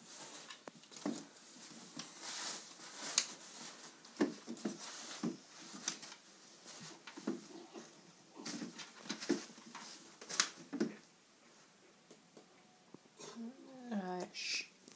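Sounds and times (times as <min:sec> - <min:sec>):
cloth rustling: 0:00.0 - 0:11.8.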